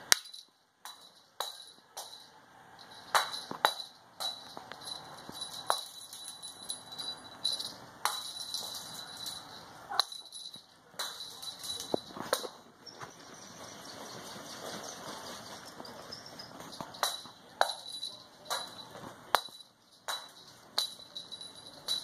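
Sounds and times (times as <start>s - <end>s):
cat toy jingling: 0.2s - 22.0s.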